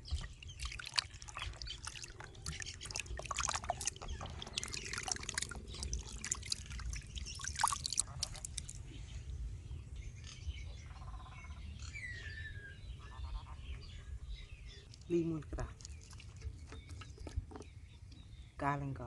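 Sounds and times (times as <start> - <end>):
water sloshing and squelching: 0.0 - 9.0, 14.7 - 17.7
faint birds chirping: 0.0 - 19.0.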